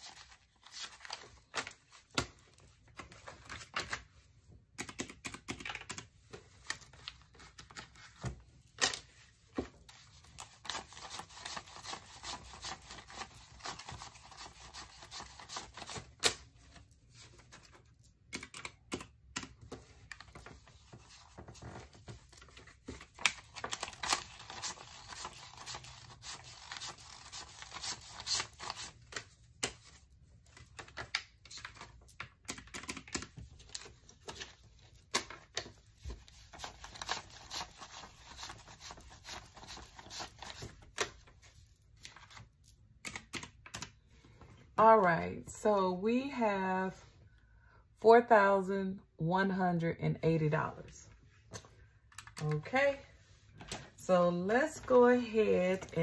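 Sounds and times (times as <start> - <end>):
banknotes rustling and flicking: 4.8 - 18.2, 19.4 - 42.6.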